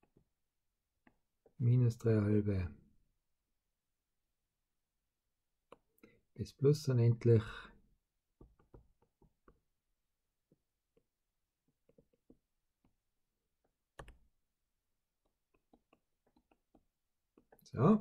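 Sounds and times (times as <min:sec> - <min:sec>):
stylus tapping on tablet screen: 0:00.0 - 0:00.4, 0:08.3 - 0:17.6.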